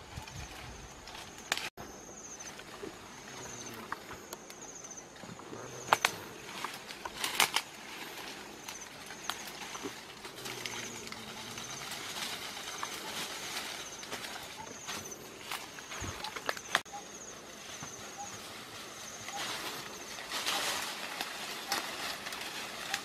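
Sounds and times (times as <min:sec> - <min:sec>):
leaves and branches rustling: 0:00.0 - 0:23.0
twig snaps and crackles: 0:01.4 - 0:01.7, 0:05.9 - 0:07.8.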